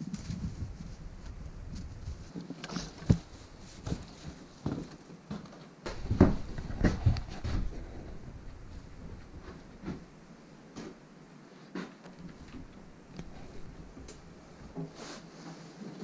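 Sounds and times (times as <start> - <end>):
footsteps on wooden floor: 2.1 - 10.1
knocks and thuds: 5.9 - 7.8.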